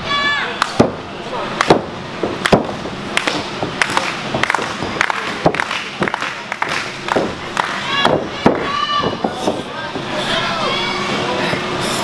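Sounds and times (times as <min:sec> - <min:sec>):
crowd murmur: 0:03.2 - 0:12.0.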